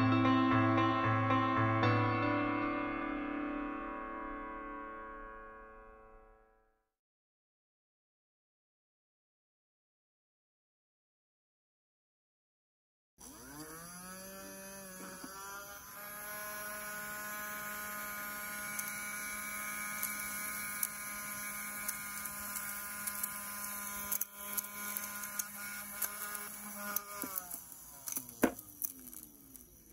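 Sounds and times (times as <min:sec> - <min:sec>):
small vacuum motor humming: 0:13.2 - 0:29.9.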